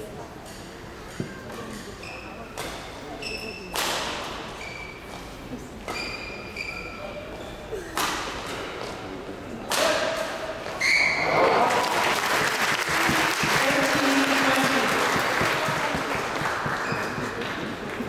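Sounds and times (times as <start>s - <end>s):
racket hitting shuttlecock: 3.7s - 4.3s
crowd applauding and cheering: 11.2s - 18.0s.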